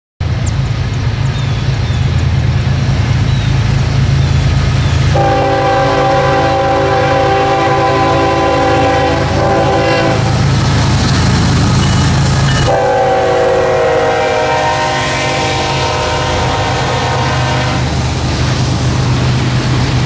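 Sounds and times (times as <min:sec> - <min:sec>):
diesel locomotives rumbling: 0:00.2 - 0:20.0
train air horn chord: 0:05.1 - 0:10.3, 0:12.6 - 0:17.9.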